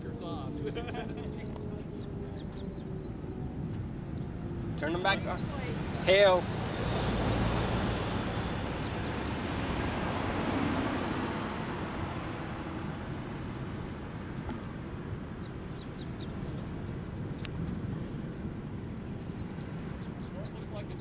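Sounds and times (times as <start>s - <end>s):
steady traffic rush: 0.0s - 21.0s
car driving by: 4.4s - 12.7s.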